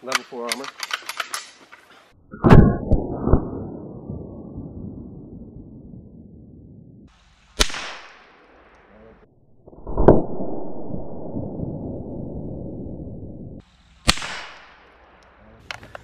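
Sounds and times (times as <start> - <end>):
rifle shots: 7.6 - 8.3, 14.0 - 14.8.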